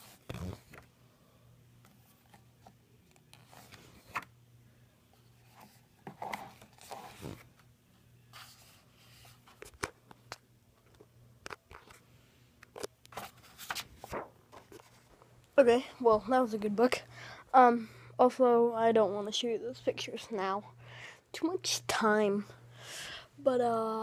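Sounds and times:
faint low hum: 0.0 - 24.0
paper rustling: 13.1 - 15.2.

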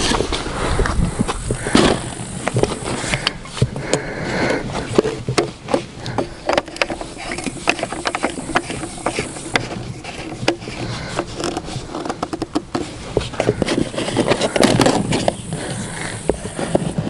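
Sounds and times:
plastic clicks and knocks: 5.0 - 15.4.

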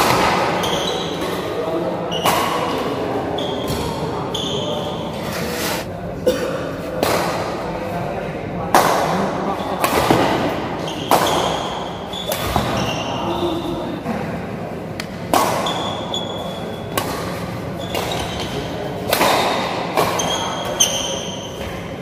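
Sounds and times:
court shoes squeaking: 0.2 - 1.5, 2.1 - 5.9, 10.8 - 13.8, 15.6 - 18.8, 20.0 - 22.0.

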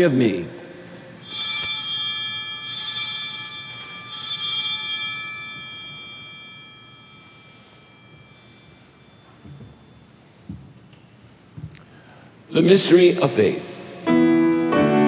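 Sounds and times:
altar bells ringing: 0.9 - 11.8.

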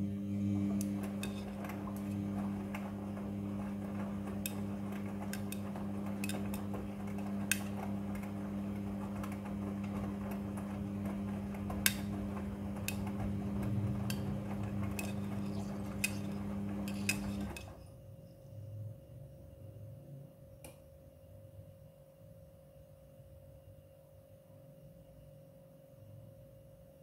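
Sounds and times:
washing machine motor hum: 0.0 - 20.5.

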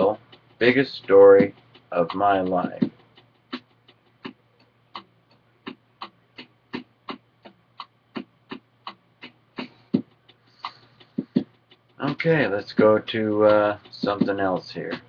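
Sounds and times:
sharp clicking: 0.0 - 15.0.

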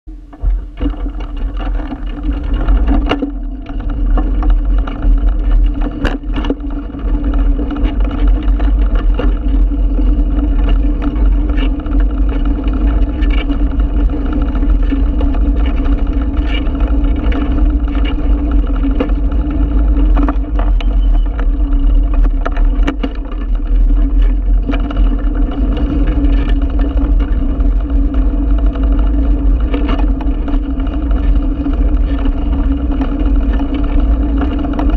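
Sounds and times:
bicycle knocks and rattles: 0.1 - 34.9
bicycle tyres rumbling on bricks: 0.1 - 34.9.

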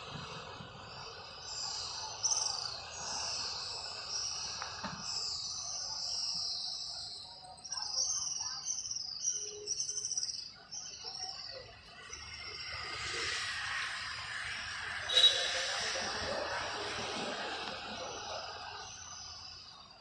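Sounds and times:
small birds chirping: 0.0 - 14.4.

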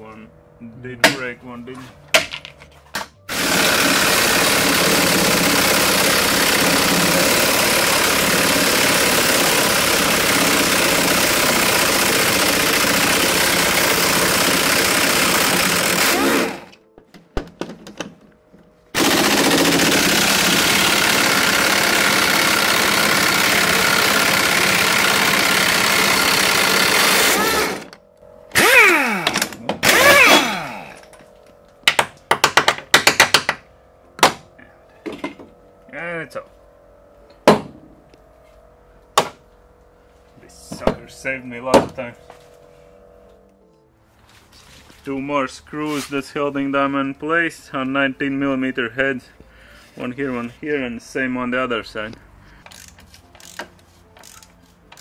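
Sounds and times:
pneumatic impact wrench hammering: 3.2 - 16.8, 18.9 - 31.2, 31.8 - 33.6, 52.6 - 55.0.

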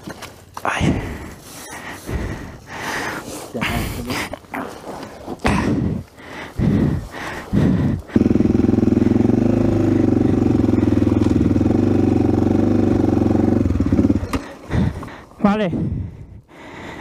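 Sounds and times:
motorcycle engine running: 7.6 - 15.1.

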